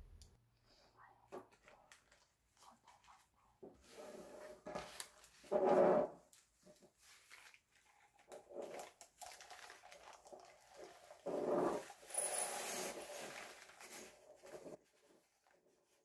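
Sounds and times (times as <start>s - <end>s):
plastic bags rustling: 6.8s - 14.8s
plastic crinkling: 7.0s - 10.8s, 12.6s - 14.7s.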